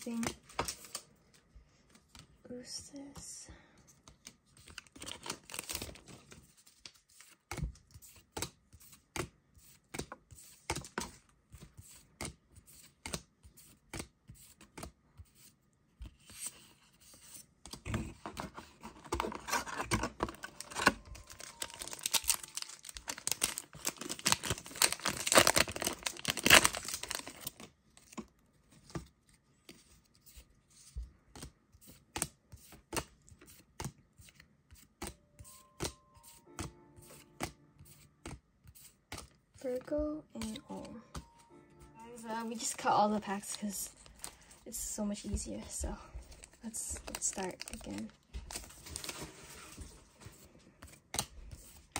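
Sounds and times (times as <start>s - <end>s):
foil wrappers crinkling and tearing: 4.6s - 7.3s, 19.2s - 28.2s, 46.4s - 49.9s.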